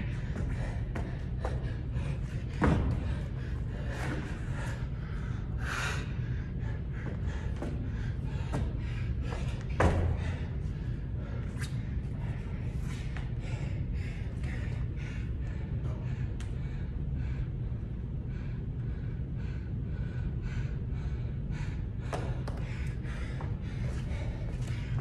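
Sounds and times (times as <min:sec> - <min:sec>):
low room hum: 0:00.0 - 0:25.0
heavy thumps on rubber floor: 0:02.5 - 0:03.2, 0:07.0 - 0:10.4.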